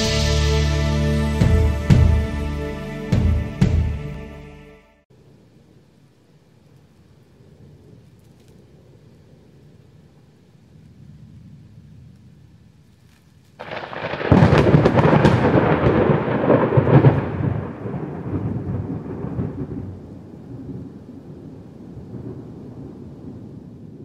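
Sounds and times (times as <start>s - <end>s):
thunder crack and rumble: 13.6s - 24.0s.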